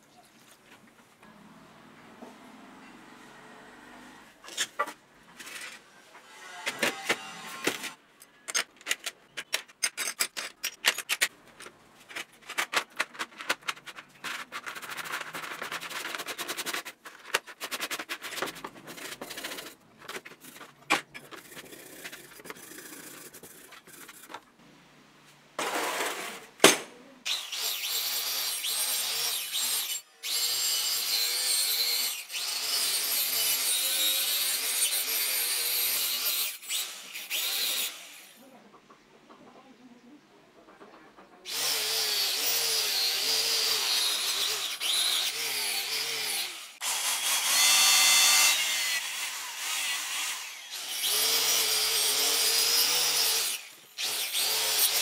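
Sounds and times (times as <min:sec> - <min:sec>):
brush scrubbing metal parts: 0:09.8 - 0:24.5.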